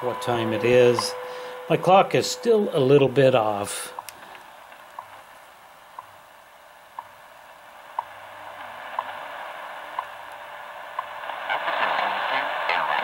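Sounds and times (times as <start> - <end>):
shortwave radio static: 0.0 - 13.0
time signal seconds ticks: 0.2 - 1.8, 4.9 - 5.2, 5.9 - 6.2, 6.9 - 7.1, 10.0 - 10.4.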